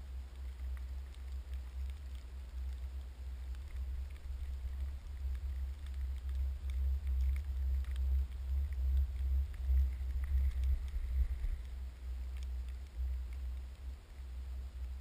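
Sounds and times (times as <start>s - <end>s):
wind buffeting microphone: 9.5s - 11.8s.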